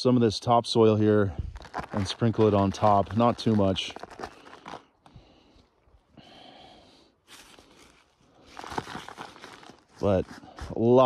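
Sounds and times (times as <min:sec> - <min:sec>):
soil crumbled by hand: 0:00.8 - 0:05.1, 0:07.3 - 0:11.0.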